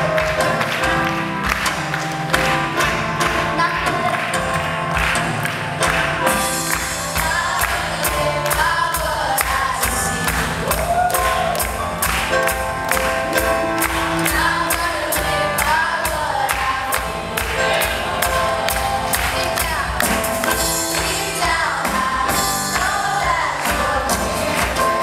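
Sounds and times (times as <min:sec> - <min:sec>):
keyboard: 0:00.0 - 0:25.0
steady drum beat: 0:00.0 - 0:25.0
girl singing lead: 0:03.2 - 0:04.7, 0:06.5 - 0:11.6, 0:14.0 - 0:25.0.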